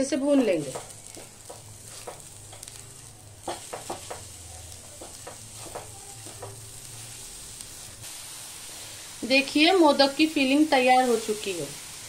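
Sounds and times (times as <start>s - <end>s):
faint sizzle of frying: 0.0s - 12.0s
spatula scraping a pan: 0.9s - 7.9s.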